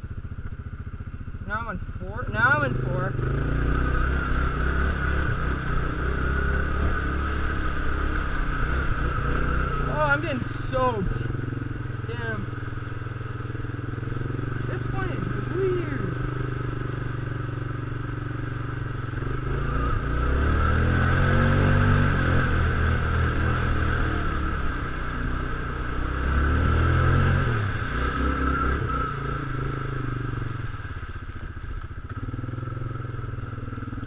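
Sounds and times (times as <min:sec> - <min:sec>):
small vehicle engine revving: 0:02.1 - 0:34.0.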